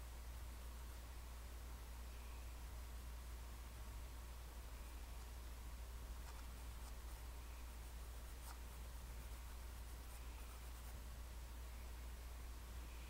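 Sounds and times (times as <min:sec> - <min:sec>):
pencil scratching on paper: 0:06.2 - 0:11.0.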